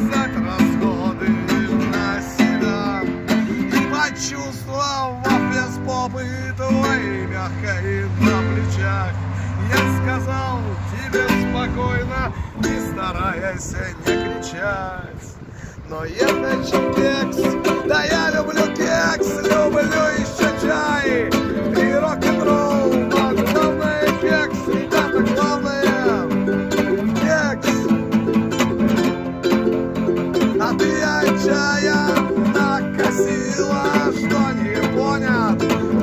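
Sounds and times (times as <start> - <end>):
ukulele: 0.0 - 14.8, 16.1 - 36.0
acoustic guitar: 0.0 - 36.0
man singing: 0.0 - 36.0.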